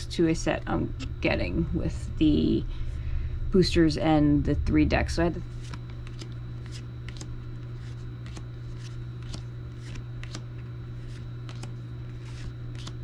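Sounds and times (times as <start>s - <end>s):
steady low hum: 0.0s - 13.0s
trading cards flipping: 5.6s - 13.0s.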